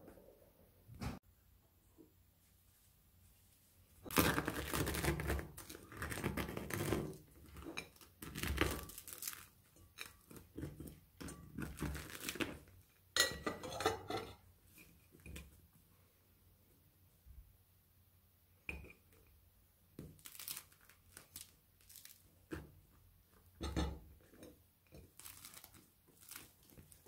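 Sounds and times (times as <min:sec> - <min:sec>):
bread crust cracking: 0:04.1 - 0:12.8, 0:20.0 - 0:22.8, 0:25.0 - 0:27.0.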